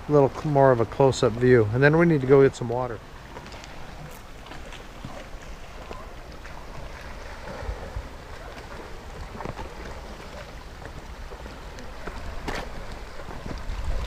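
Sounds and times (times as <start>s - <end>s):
lake waves lapping on rocks: 0.0s - 14.0s
wind buffeting microphone: 5.0s - 14.0s.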